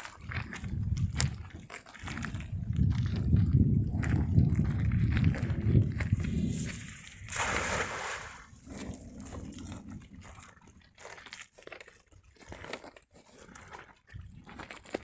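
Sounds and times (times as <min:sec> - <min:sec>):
net splashing onto water: 0:06.7 - 0:08.6.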